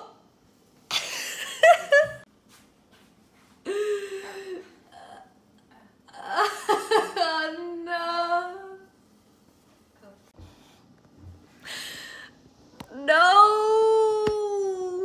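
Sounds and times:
woman laughing: 0.9s - 2.2s, 6.2s - 7.7s.

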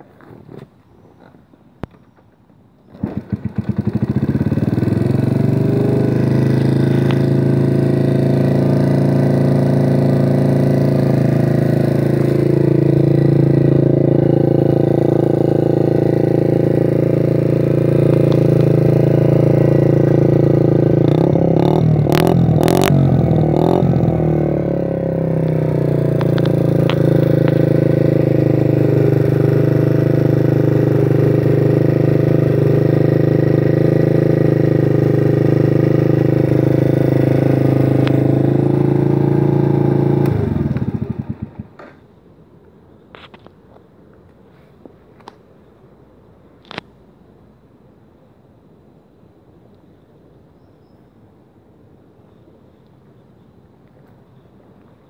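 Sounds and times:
moped engine starting and idling: 2.8s - 42.0s.

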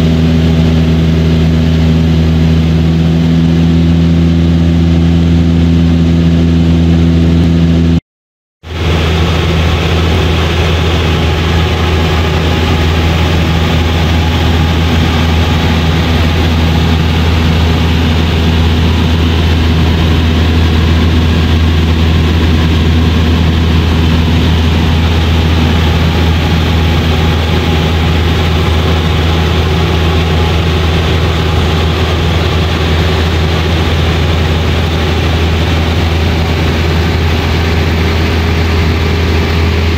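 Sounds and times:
airplane engine droning in cabin: 0.0s - 8.0s, 8.7s - 39.9s.

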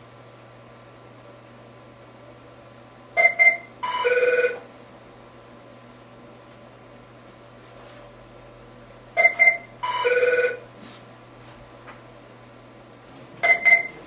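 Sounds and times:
electronic phone ringtone: 3.2s - 4.6s, 9.2s - 10.6s, 13.4s - 14.0s.

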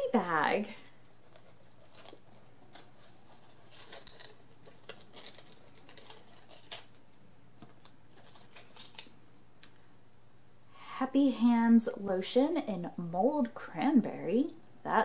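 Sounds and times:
low steady hum: 0.0s - 15.0s
packaging crinkling: 1.1s - 9.2s.

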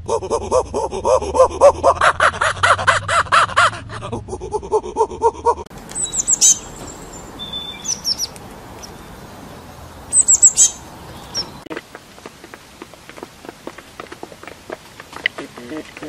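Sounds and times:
monkey pulsed calls: 0.0s - 4.1s, 5.0s - 9.3s, 10.1s - 11.6s
small bird chirping: 5.8s - 11.7s.

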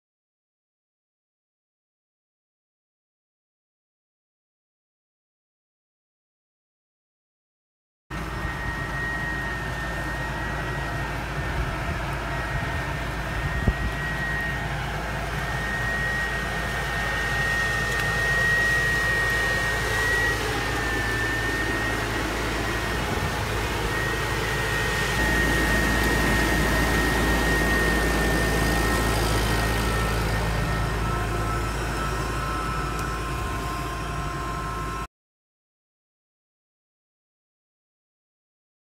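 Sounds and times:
leaf remover high whine: 8.1s - 35.1s
tractor diesel engine: 8.2s - 35.1s.

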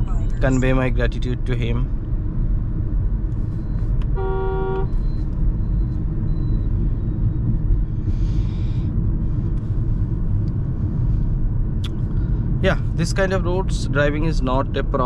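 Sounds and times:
road and engine rumble in car: 0.0s - 15.0s
vehicle horn: 4.1s - 5.0s.

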